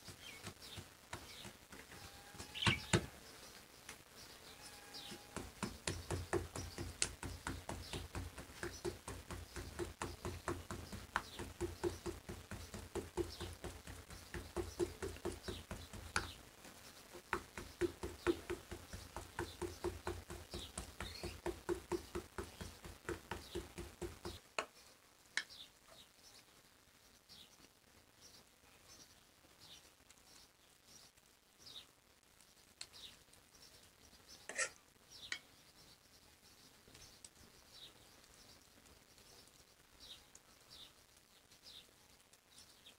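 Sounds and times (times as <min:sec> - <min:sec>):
brush tapping on dough: 0:00.1 - 0:03.1, 0:05.3 - 0:16.4, 0:17.1 - 0:24.4.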